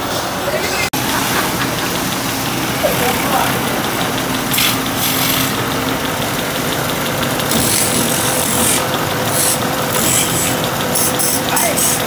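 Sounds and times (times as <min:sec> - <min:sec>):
lathe motor hum: 0:00.0 - 0:12.0
chisel scraping spinning wood: 0:02.8 - 0:12.0.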